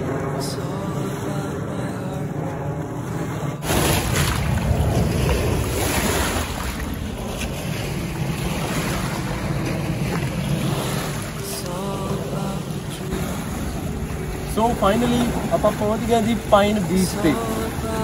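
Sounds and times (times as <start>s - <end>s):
waves splashing against rocks: 0.0s - 18.0s
wind buffeting microphone: 0.0s - 18.0s
soft background music: 9.3s - 18.0s.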